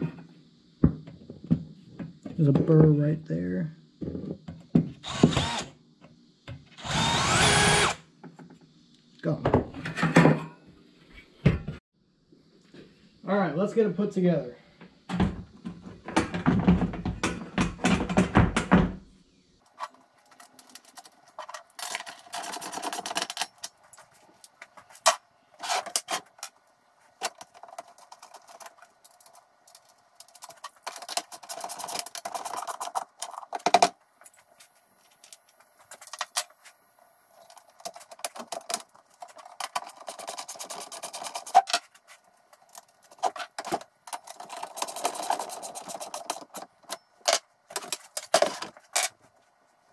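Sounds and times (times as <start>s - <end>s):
metal tapping and scraping plastic: 42.6s - 49.1s.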